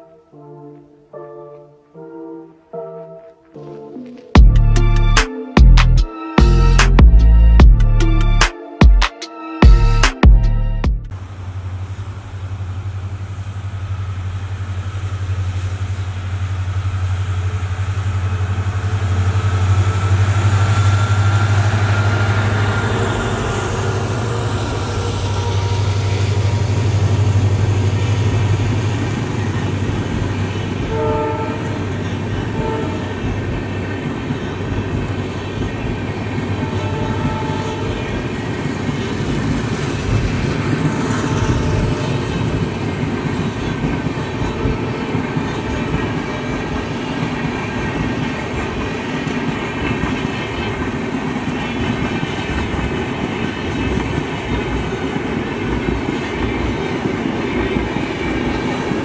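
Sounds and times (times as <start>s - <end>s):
diesel locomotive engine drone: 4.4s - 8.5s, 9.6s - 59.0s
train horn blasts: 24.7s - 28.0s, 30.3s - 33.5s, 36.4s - 38.4s.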